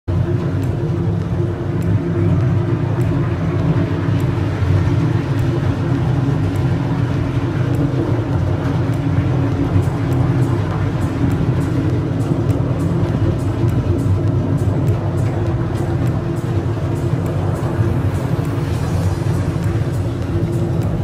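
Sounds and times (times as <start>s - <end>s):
motorboat engine drone: 0.1s - 21.0s
rush of wind and water: 0.1s - 21.0s.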